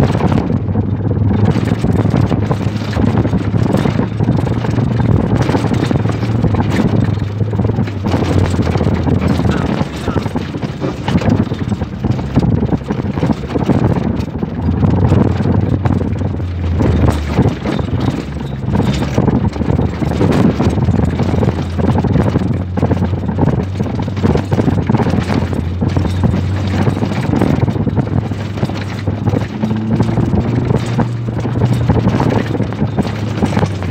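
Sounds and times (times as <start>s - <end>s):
vehicle engine running: 0.0s - 33.9s
vehicle knocks and rattles: 0.0s - 33.9s
wind buffeting microphone: 0.0s - 33.9s.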